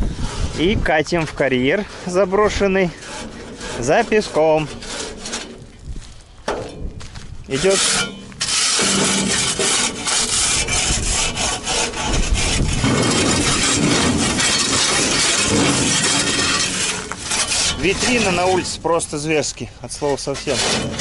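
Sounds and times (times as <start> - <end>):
shovel scraping soil off steel: 7.5 - 19.2, 19.9 - 21.0.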